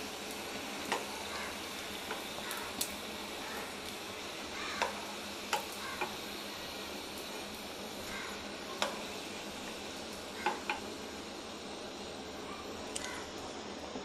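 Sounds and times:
oil sizzling: 0:00.0 - 0:14.0
slotted spoon clicking against pan: 0:04.8 - 0:06.2.

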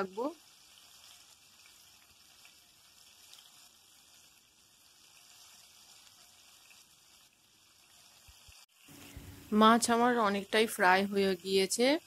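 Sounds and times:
fish sizzling in oil: 0:00.0 - 0:12.0.

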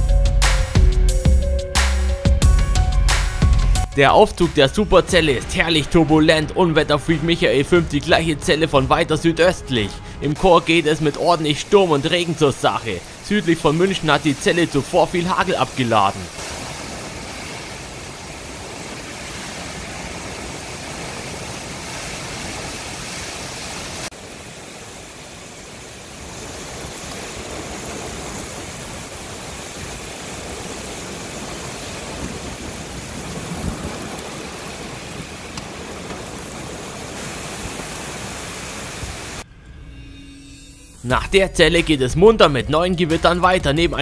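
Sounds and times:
heavy rain downpour: 0:00.0 - 0:39.4
wind gusts on microphone: 0:16.3 - 0:39.4.

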